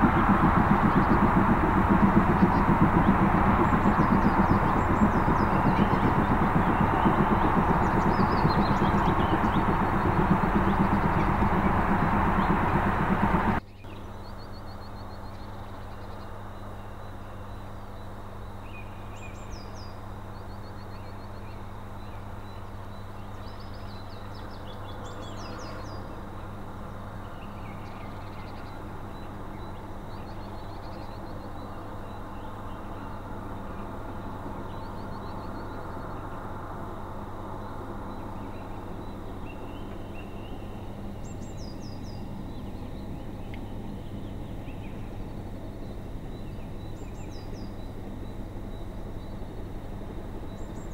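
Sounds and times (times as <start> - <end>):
distant steam train rumble: 0.0 - 13.6, 24.9 - 50.9
loud sound cutting off: 0.0 - 13.6
steady low hum: 0.0 - 14.4, 19.9 - 50.9
songbirds singing: 0.0 - 50.9.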